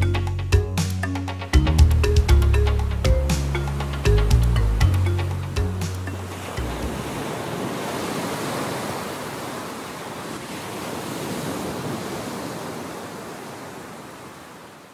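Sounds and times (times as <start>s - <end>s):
waves breaking on rocks: 6.0s - 14.9s.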